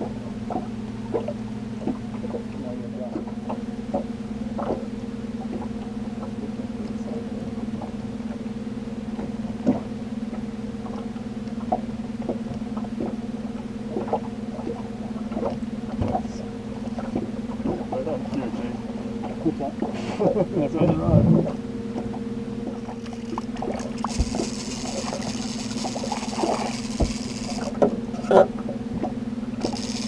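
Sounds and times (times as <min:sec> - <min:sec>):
boat motor humming: 0:00.0 - 0:30.0
fishing tackle clicks and knocks: 0:22.7 - 0:28.4, 0:29.6 - 0:30.0.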